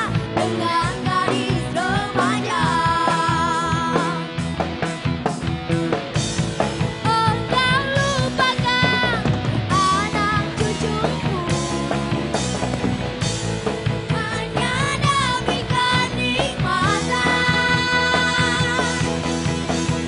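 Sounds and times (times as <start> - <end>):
woman singing: 0.0 - 4.3, 7.0 - 12.6, 14.1 - 19.3
drum kit: 0.0 - 20.0
electric bass: 0.0 - 20.0.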